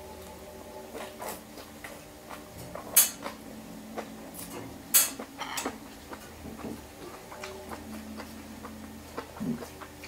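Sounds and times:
cutlery clinking on glass bowl: 2.8s - 3.3s, 4.4s - 5.8s.

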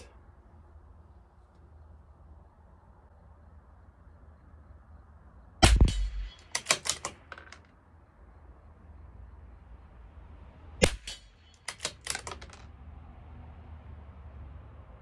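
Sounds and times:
rifle bolt clicking: 5.7s - 7.6s, 10.8s - 12.6s.

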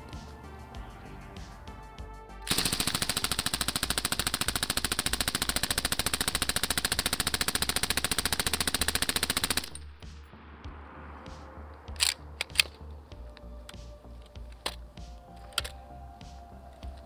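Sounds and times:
suppressed machine gun burst: 2.5s - 9.8s.

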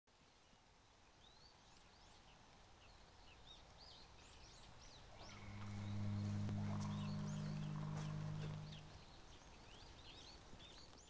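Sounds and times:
birds chirping: 4.4s - 11.0s
low steady drone: 5.1s - 9.2s.

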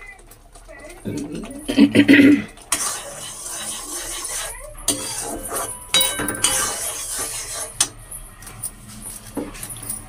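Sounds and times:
wooden spatula scraping: 2.3s - 8.0s
food sizzling in a wok: 2.7s - 7.8s.

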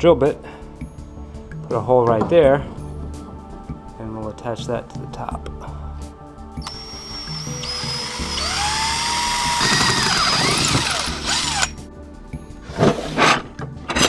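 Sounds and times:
drill bit grinding through metal: 6.6s - 11.8s
drill motor whine: 6.6s - 11.8s.

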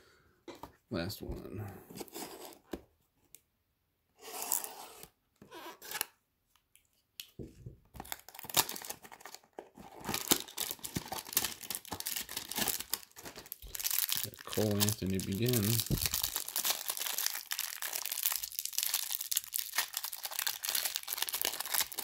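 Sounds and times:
packaging tearing and crinkling: 8.0s - 22.0s.

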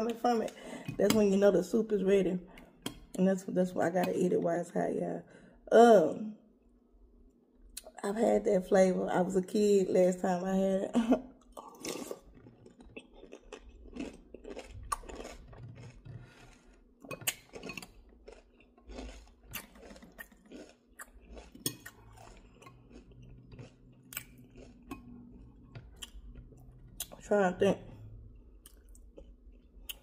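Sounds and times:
person chewing: 11.4s - 27.2s, 27.8s - 30.0s.

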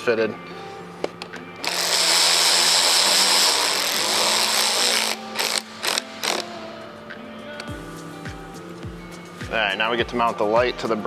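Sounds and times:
cordless ratchet running: 1.6s - 6.4s.

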